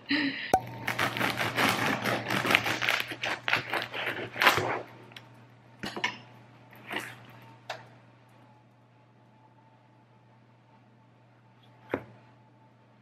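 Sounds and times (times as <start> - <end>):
bread knife crunching crust: 0.8 - 4.9.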